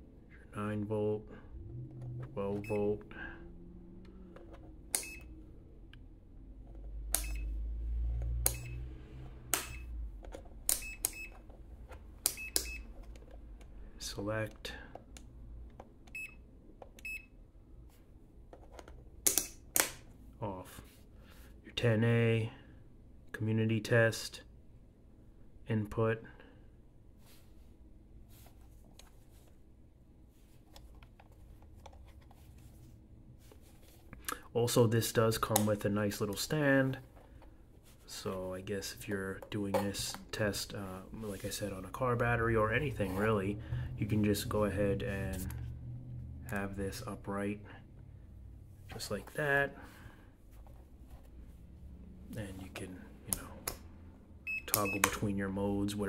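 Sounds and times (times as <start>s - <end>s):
steady low hum: 0.0s - 56.0s
low rumble: 1.2s - 4.4s, 42.0s - 48.8s.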